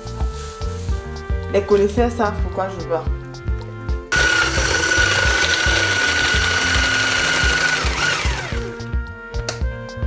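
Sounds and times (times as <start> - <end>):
background music with beat: 0.0 - 10.0
electric hand blender whining: 4.1 - 8.9.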